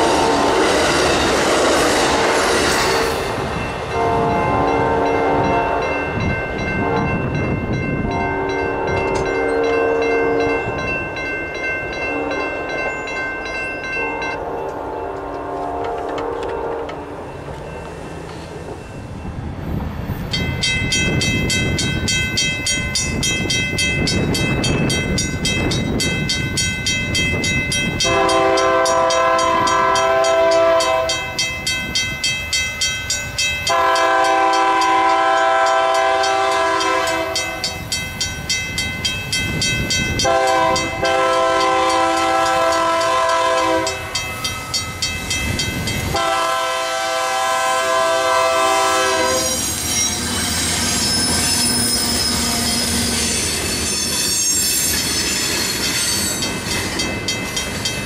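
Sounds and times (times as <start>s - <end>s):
locomotive air horn blasts: 0.0s - 1.0s, 2.0s - 3.2s, 4.0s - 6.0s, 6.8s - 7.2s, 8.0s - 10.6s, 12.0s - 12.5s, 14.4s - 17.1s, 28.0s - 31.4s, 33.7s - 37.8s, 40.2s - 44.2s, 46.1s - 49.8s
crossing bell ringing: 0.0s - 58.0s
train wheels rumbling: 0.0s - 58.0s.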